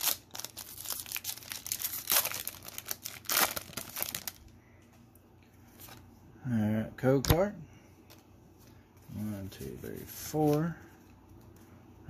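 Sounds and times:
foil wrapper crinkling and tearing: 0.0 - 4.5.

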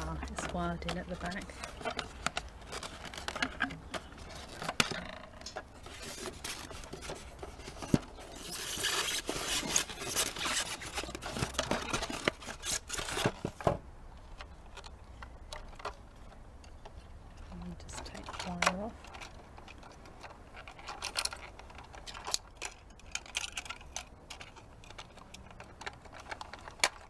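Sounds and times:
plastic toy scraping polystyrene: 5.8 - 13.4.

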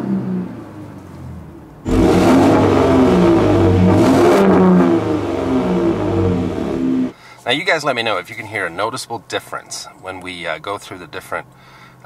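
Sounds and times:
truck engine revving: 1.8 - 7.1.

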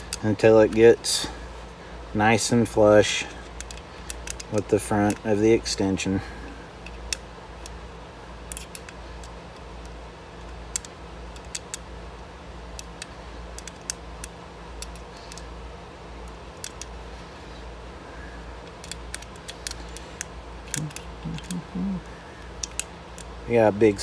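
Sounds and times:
low steady hum: 0.0 - 24.0
hex key clicking in a screw: 3.4 - 5.2, 8.5 - 10.0, 12.8 - 15.5, 16.3 - 16.9, 18.6 - 21.6, 22.4 - 23.3.

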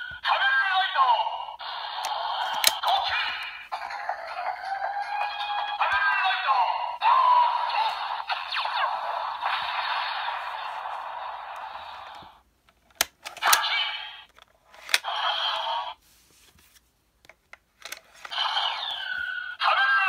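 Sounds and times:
toy electronic sound effects: 0.2 - 12.2, 13.3 - 14.3, 18.2 - 20.0.

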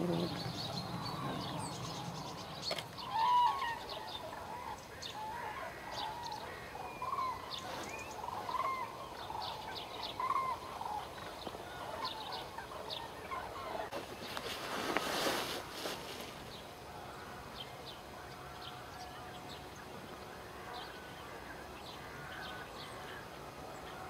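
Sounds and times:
cranes calling: 0.0 - 13.9.

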